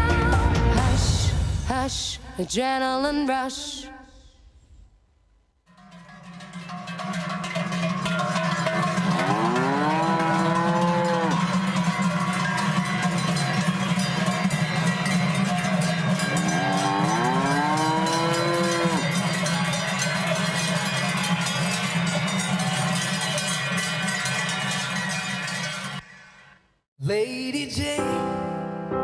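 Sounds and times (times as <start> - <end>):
cowbells clanging: 5.7 - 26.0
cow mooing: 9.1 - 11.5, 16.3 - 19.3.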